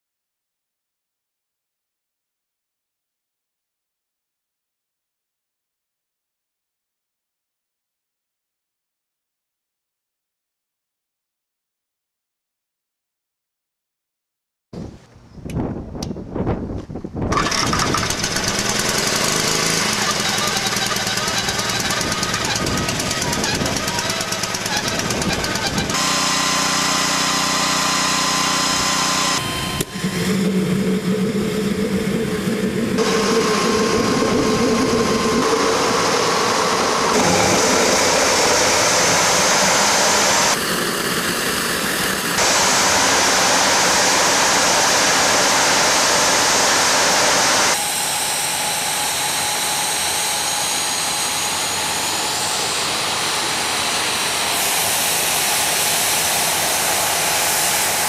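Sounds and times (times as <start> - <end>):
jet engine running: 17.3 - 58.0.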